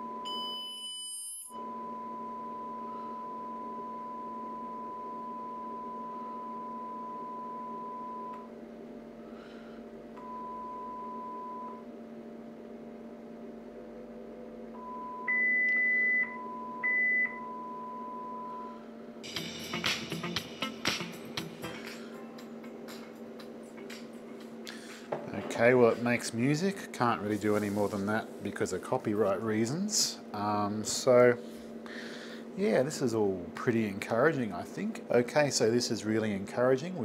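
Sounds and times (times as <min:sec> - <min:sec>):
sine test tones: 0:00.0 - 0:08.6, 0:10.2 - 0:11.9, 0:14.7 - 0:19.0
low steady hum: 0:00.0 - 0:37.0.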